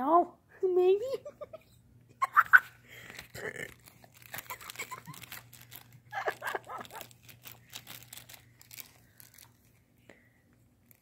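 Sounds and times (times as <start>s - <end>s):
plastic wrapper crinkling: 2.9s - 10.0s, 10.8s - 11.0s.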